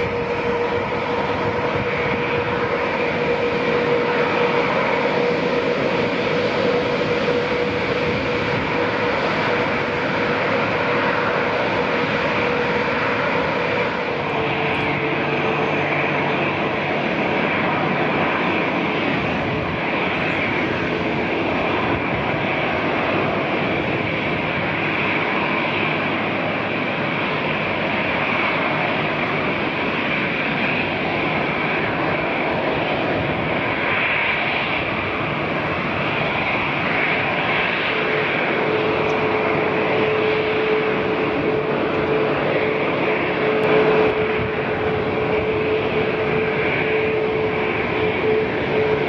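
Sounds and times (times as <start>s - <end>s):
jet engines running: 0.0s - 49.0s.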